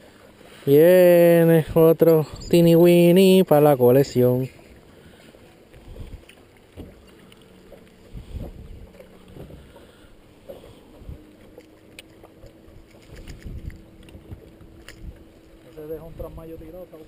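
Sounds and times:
faint steady hum: 0:00.0 - 0:17.0
low thumps and knocks: 0:06.7 - 0:07.1.

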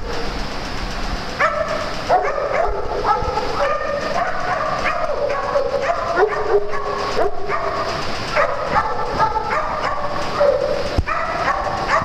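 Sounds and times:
dogs barking and yipping: 0:01.3 - 0:12.0.

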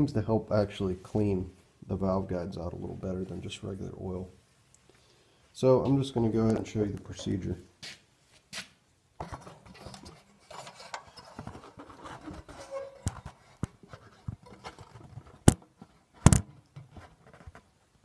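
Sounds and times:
scraping and rustling: 0:06.4 - 0:18.0.

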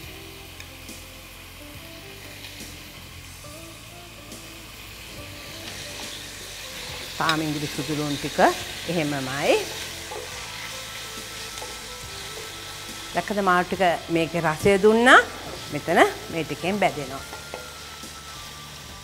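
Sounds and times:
chicken and onions sizzling in a pot: 0:00.0 - 0:19.0
wooden spatula stirring: 0:09.6 - 0:13.7.

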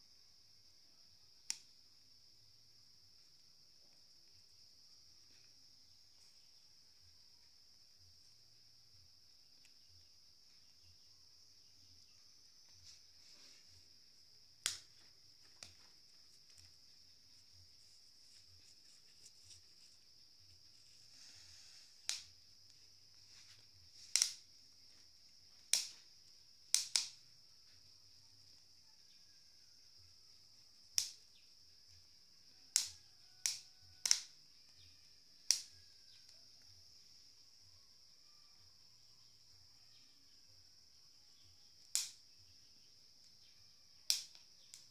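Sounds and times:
crickets trilling: 0:00.0 - 0:44.9
insects chirring: 0:00.0 - 0:44.9
maize cobs popping over charcoal: 0:01.3 - 0:02.1, 0:12.5 - 0:28.7, 0:30.4 - 0:37.0, 0:41.5 - 0:44.9
maize popping on a grill: 0:14.6 - 0:16.9, 0:23.9 - 0:24.5, 0:25.6 - 0:27.3, 0:30.9 - 0:31.4, 0:32.6 - 0:34.8, 0:35.4 - 0:36.4, 0:41.8 - 0:42.3, 0:44.1 - 0:44.9.

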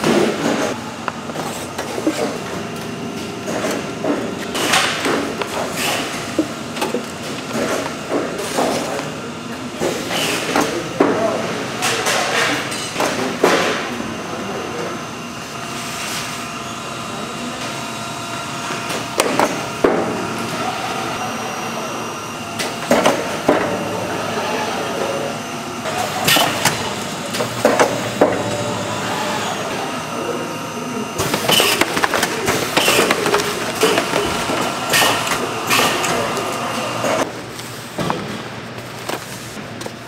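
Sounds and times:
machinery hum: 0:00.0 - 0:40.0.

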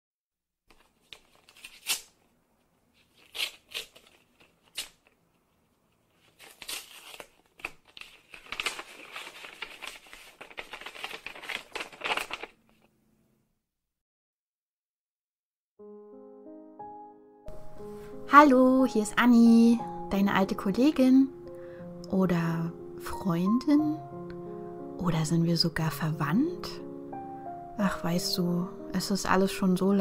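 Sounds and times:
envelope tearing and rustling: 0:00.7 - 0:02.3, 0:02.9 - 0:12.9
paper crackling: 0:00.7 - 0:12.9.

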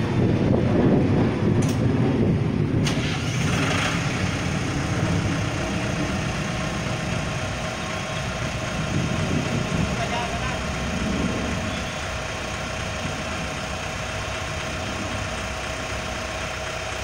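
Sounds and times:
diesel engine idling: 0:00.0 - 0:17.0
sharp click: 0:01.6 - 0:01.8.

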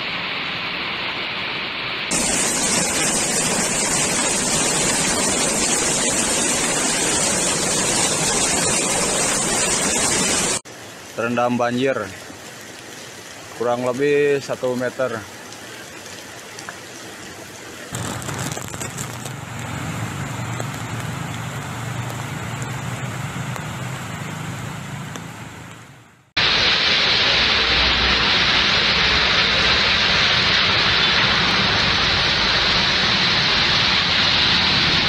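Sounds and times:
heavy rain on road: 0:02.1 - 0:35.0
vehicles driving through water: 0:12.2 - 0:26.1.

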